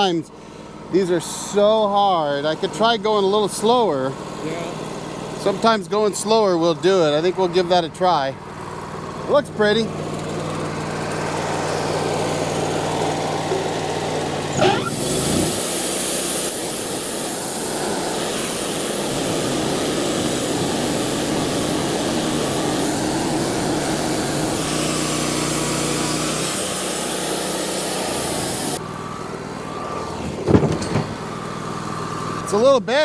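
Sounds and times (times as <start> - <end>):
sawmill engine idling and revving: 0.0 - 33.0
band saw cutting log hiss: 11.2 - 28.8.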